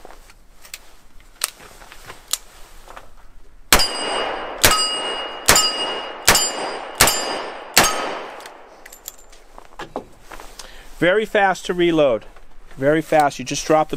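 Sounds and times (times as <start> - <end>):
metallic ring: 3.8 - 8.1.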